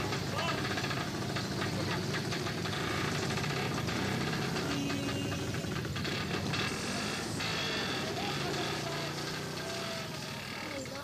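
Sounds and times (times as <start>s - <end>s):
busy street clatter: 0.0s - 11.0s
small motorcycle engine: 0.0s - 11.0s.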